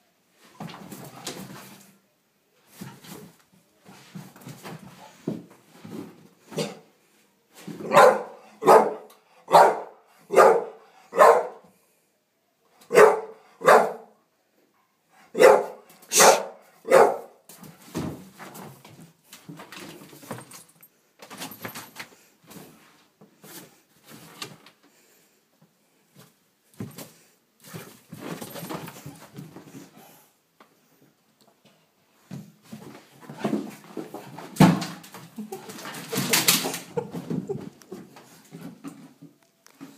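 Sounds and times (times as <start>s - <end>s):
dog barking: 7.8s - 11.6s, 12.9s - 14.2s, 15.2s - 17.4s.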